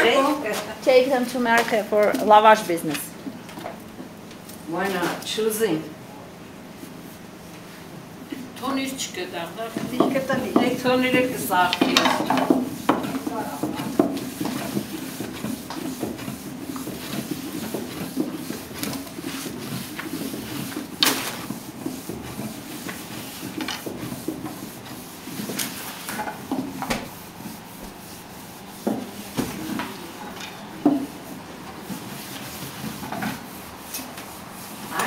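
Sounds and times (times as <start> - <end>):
rolling pin on wooden board: 9.7 - 35.0.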